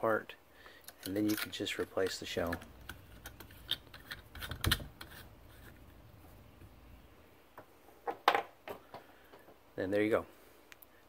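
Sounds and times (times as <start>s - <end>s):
light rubbing of plastic: 0.9s - 6.7s.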